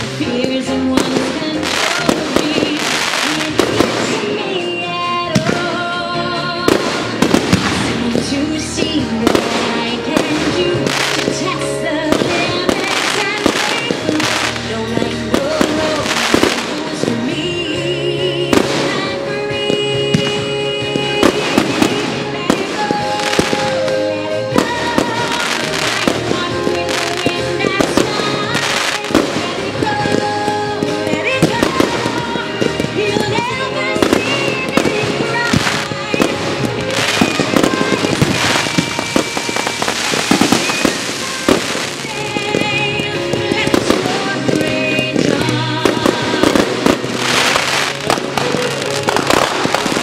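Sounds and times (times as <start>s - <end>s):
music soundtrack: 0.0s - 50.0s
firework shells bursting: 34.0s - 50.0s.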